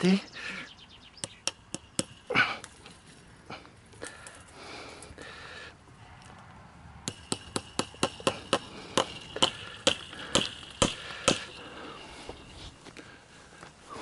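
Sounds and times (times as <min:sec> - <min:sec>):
hammer striking wooden post: 0:01.2 - 0:02.3, 0:07.0 - 0:11.6.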